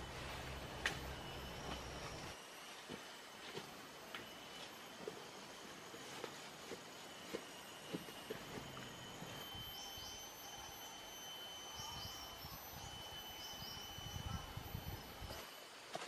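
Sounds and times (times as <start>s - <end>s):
insects droning: 0.0s - 16.0s.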